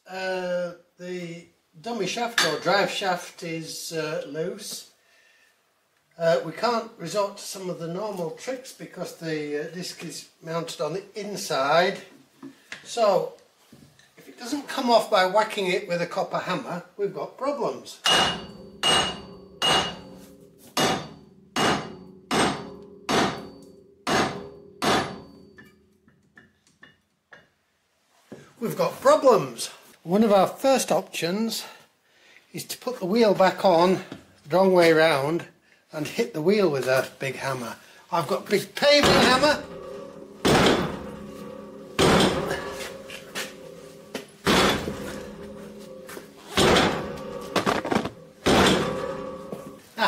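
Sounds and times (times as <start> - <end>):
hammer striking metal hub: 18.0 - 27.4, 39.0 - 49.8.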